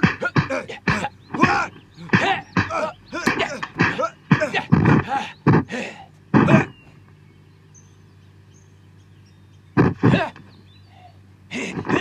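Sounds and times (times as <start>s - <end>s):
martial arts shouts: 0.0s - 5.8s, 6.4s - 6.7s, 10.0s - 10.4s
low steady hum: 0.0s - 12.0s.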